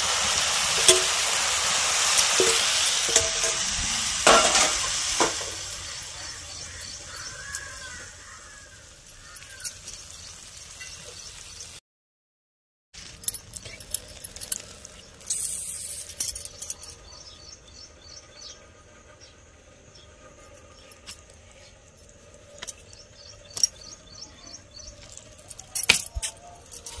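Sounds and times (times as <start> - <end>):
spoon clinking against metal pot: 0.8 - 1.2, 2.2 - 3.7.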